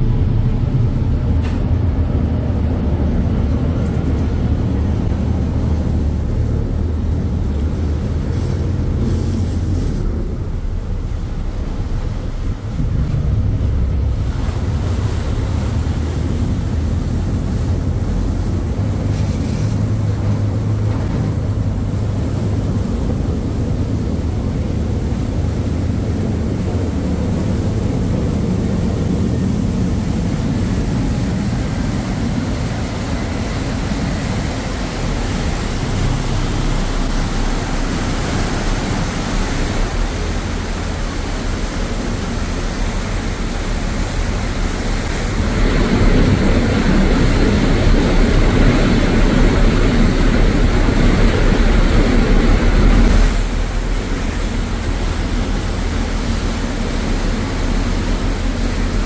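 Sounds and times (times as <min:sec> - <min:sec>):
ferry engine rumble: 0:00.0 - 0:59.0
wake water churning: 0:00.0 - 0:59.0.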